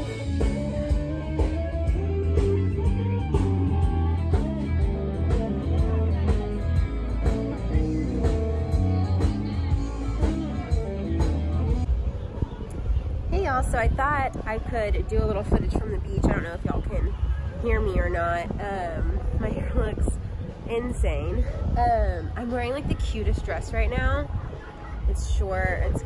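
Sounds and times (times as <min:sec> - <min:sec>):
live band playing blues-rock: 0:00.0 - 0:11.9
plucked guitar notes: 0:00.0 - 0:11.9
heavy bass line: 0:00.0 - 0:12.0.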